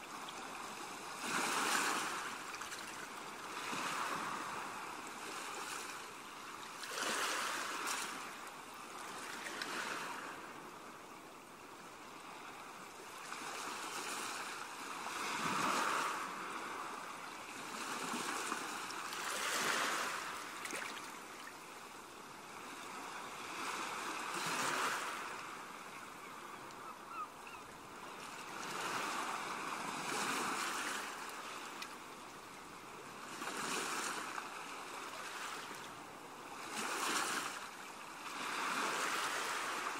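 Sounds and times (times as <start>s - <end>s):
ocean waves breaking: 0.6s - 6.0s, 13.3s - 21.6s, 22.6s - 25.8s, 28.2s - 31.8s.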